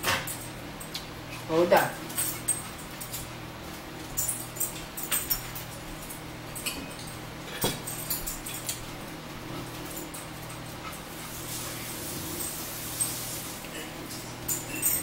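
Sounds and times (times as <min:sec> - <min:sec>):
metal spoons and dishes clinking: 0:04.1 - 0:08.9, 0:13.7 - 0:15.0.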